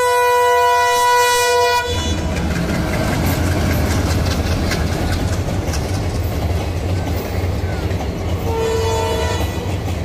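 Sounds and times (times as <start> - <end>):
locomotive air horn: 0.0 - 2.3, 8.4 - 9.8
train rumbling over bridge: 0.0 - 10.0.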